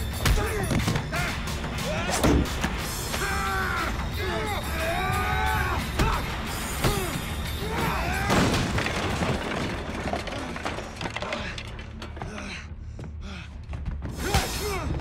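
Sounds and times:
heavy crash of something smashing: 7.8 - 11.2
hard breathing: 11.3 - 14.1.

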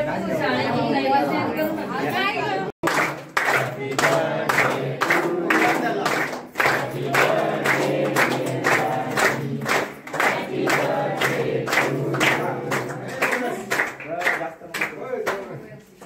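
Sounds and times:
group singing a birthday song: 0.0 - 14.2
people clapping in time: 2.8 - 15.6.

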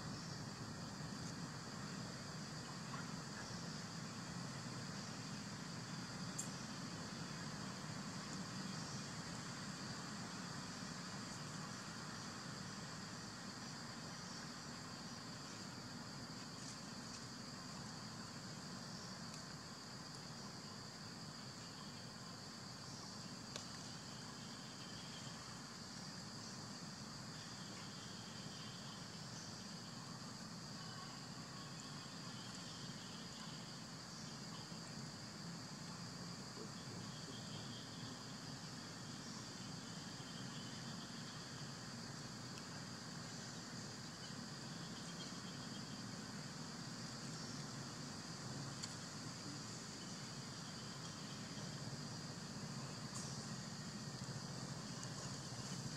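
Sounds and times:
faint high-pitched insect drone: 0.0 - 55.9
low outdoor ambience: 0.0 - 55.9
small click: 6.3 - 6.6.

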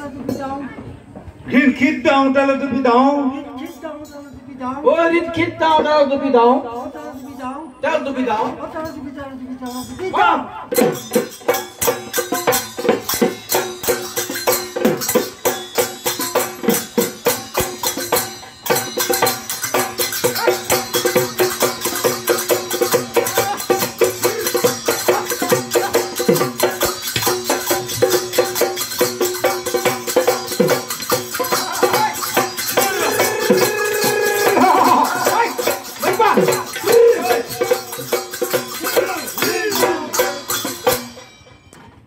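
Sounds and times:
hand cymbals clashing: 3.5 - 4.6, 6.7 - 41.9
barrel drums fast rhythm: 10.8 - 41.2.

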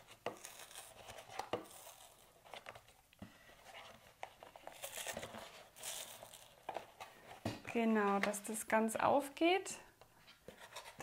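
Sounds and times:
carton cardboard crinkling: 0.0 - 8.4.

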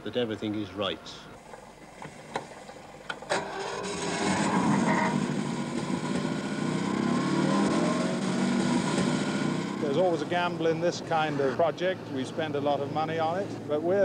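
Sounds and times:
engine running on test bed: 3.1 - 13.7.

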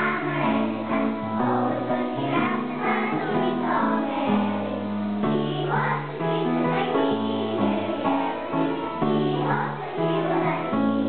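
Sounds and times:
children singing together: 0.0 - 11.0.

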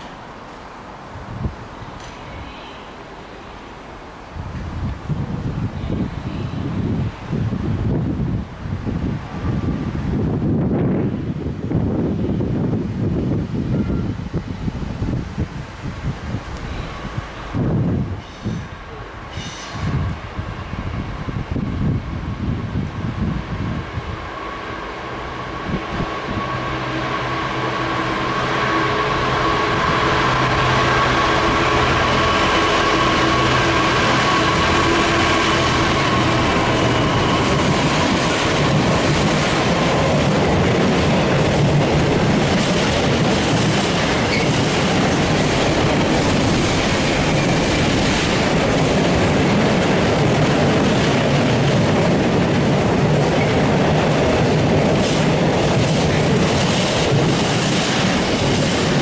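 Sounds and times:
diesel locomotive engine: 0.0 - 59.0
train wheels clattering over rail joints: 35.9 - 59.0.

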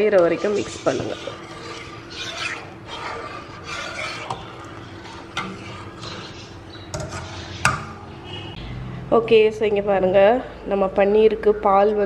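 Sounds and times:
spoon stirring milk in saucepan: 0.0 - 8.0.

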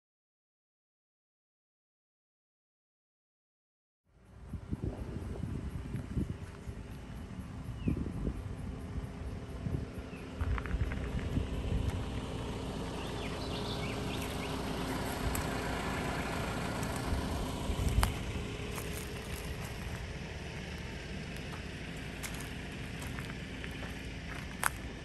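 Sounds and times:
wind buffeting microphone: 4.3 - 21.6
high bird chirps: 13.0 - 14.6.

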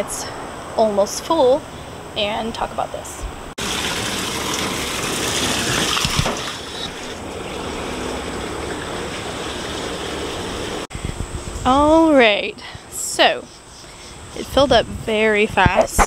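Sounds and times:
hose water splashing into tank: 3.6 - 10.9.

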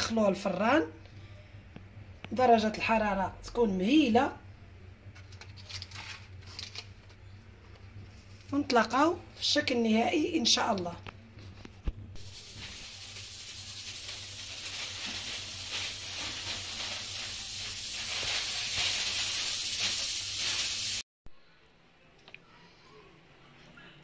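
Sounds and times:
high-pitched hiss: 12.2 - 21.0.

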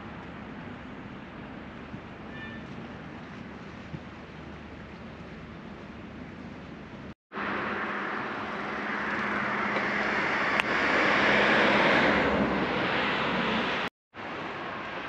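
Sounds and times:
motor vehicle passing: 7.4 - 13.9.

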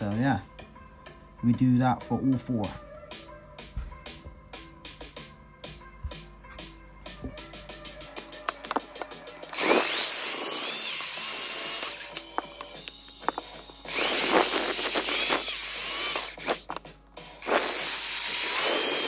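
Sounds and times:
electric drill boring plastic: 8.4 - 19.0.

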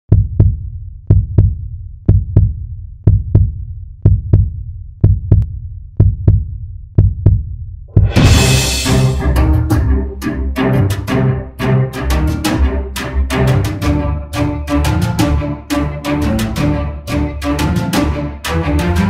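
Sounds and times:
heartbeat-like deep thumps: 0.1 - 10.0
string music with double bass: 8.0 - 19.0.

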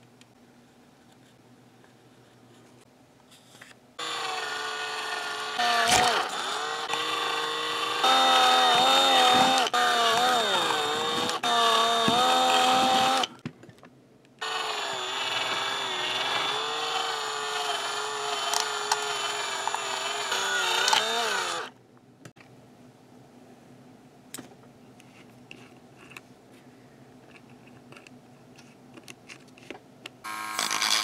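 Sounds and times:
electric drill boring plastic: 4.0 - 13.4, 14.4 - 21.7, 30.3 - 31.0.

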